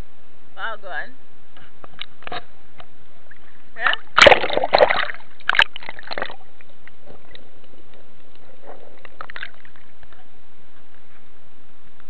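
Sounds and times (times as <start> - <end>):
muffled hiss: 0.0 - 12.0
water splashing: 3.3 - 10.3.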